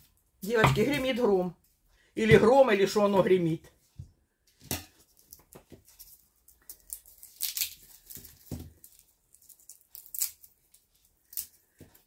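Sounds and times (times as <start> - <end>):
garlic skins crackling: 5.2 - 11.9.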